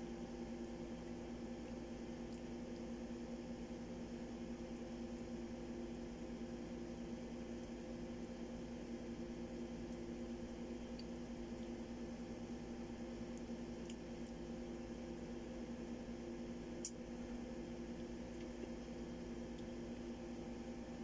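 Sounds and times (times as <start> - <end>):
faint small clicks: 1.0 - 2.9, 10.8 - 11.8, 13.3 - 14.4, 16.8 - 17.0.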